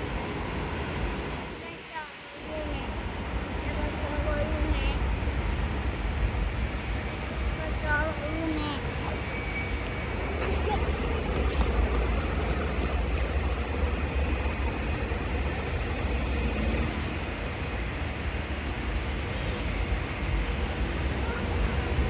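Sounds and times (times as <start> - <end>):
cars passing: 4.4 - 22.0
motor scooter passing: 15.8 - 17.6.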